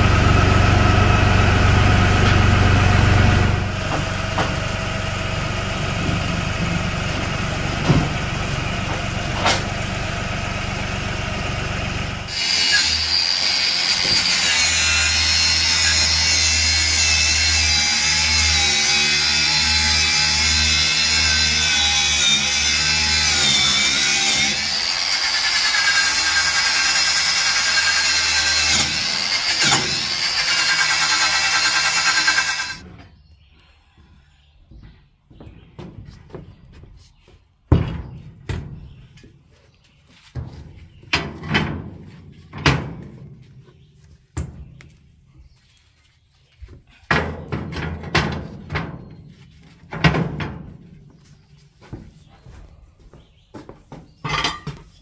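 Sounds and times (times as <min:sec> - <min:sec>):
tractor engine running: 0:00.0 - 0:12.4
angle grinder grinding metal: 0:02.1 - 0:32.8.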